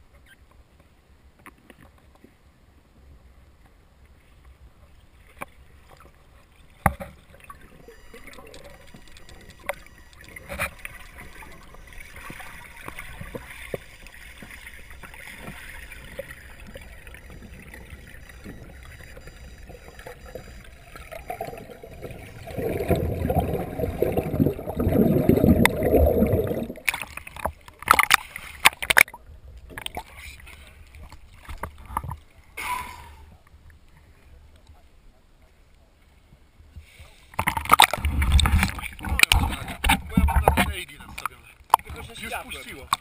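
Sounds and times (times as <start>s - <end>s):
faint underwater water noise: 0.0s - 43.0s
water churning and sloshing: 4.1s - 32.6s, 36.8s - 43.0s.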